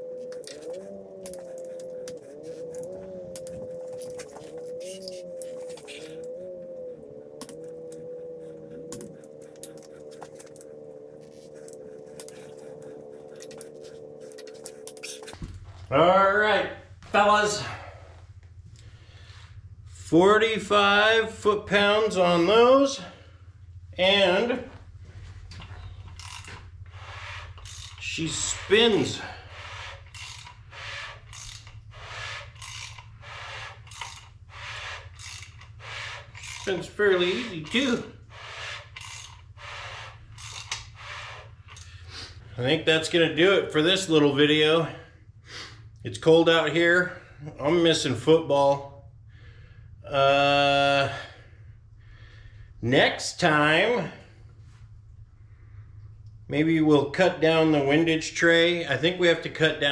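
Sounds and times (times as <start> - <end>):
steady background hum: 0.0 - 59.9
ratchet clicking: 26.1 - 28.2, 29.6 - 42.0
metallic ratchet wrench clicks: 26.2 - 26.5, 27.6 - 28.0, 30.1 - 30.6, 31.3 - 31.8, 32.6 - 33.1, 33.9 - 34.3, 35.2 - 35.7, 39.0 - 39.4, 40.4 - 40.9.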